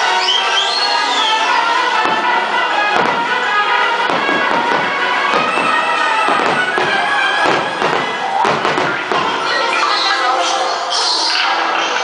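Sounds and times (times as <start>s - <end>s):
fireworks bursting and crackling: 1.0s - 10.0s.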